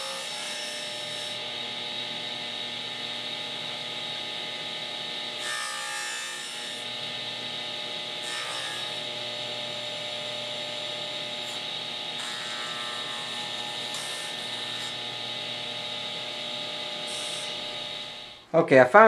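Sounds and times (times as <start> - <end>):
table saw running: 0.0 - 18.5.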